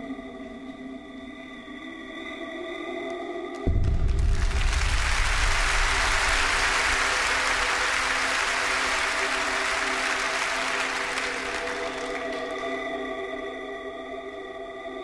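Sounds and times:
deep bass rumble: 0:03.7 - 0:06.7
audience applauding: 0:03.7 - 0:13.0.

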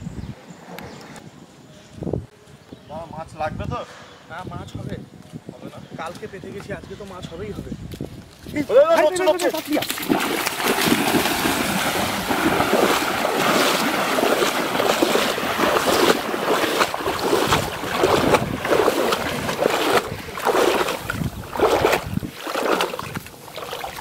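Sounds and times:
people splashing through floodwater: 0:09.0 - 0:24.0.

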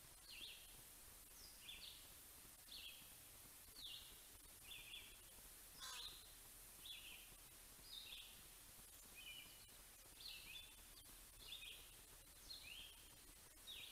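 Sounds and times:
high falling bird call: 0:05.8 - 0:06.2.

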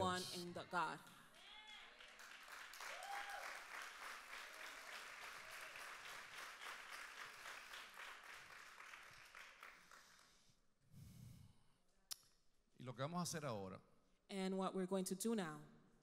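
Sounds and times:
congregation applauding: 0:01.3 - 0:10.5.

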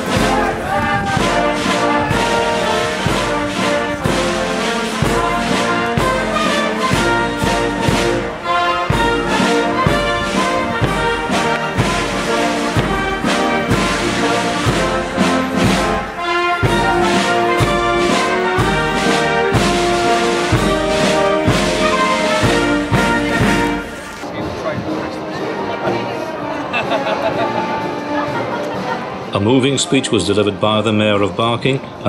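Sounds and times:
steady drum beat: 0:00.0 - 0:24.2
brass band playing a march: 0:00.0 - 0:29.5.

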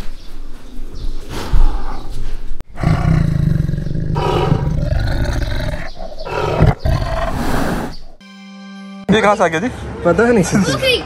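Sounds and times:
tiger roaring: 0:02.7 - 0:08.2.

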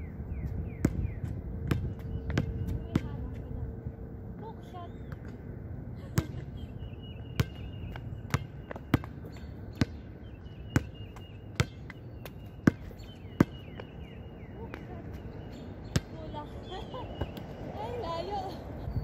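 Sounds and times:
basketball bouncing on hard court: 0:00.8 - 0:03.3, 0:07.4 - 0:10.1, 0:10.7 - 0:14.0.

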